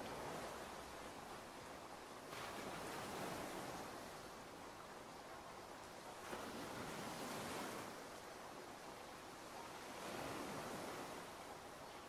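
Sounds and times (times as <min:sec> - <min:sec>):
ocean surf: 0:00.0 - 0:12.0
rain: 0:00.0 - 0:12.0.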